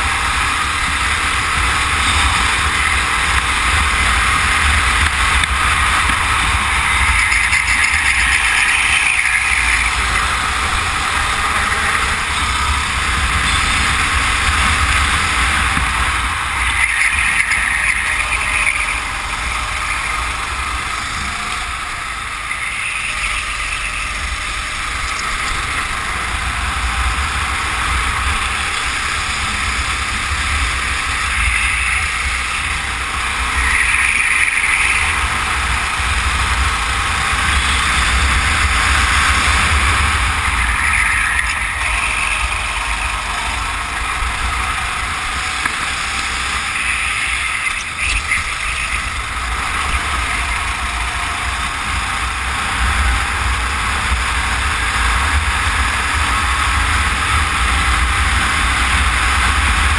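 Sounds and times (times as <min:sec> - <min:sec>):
go-kart engine running hard: 0:00.0 - 0:59.9
wind rumble on microphone: 0:00.0 - 0:59.9.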